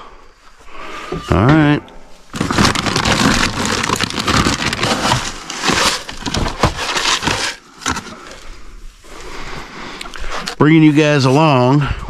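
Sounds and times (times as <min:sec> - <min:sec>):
plastic feed bag crinkling: 0:02.3 - 0:08.4
plastic scoop digging into grain: 0:02.4 - 0:08.1.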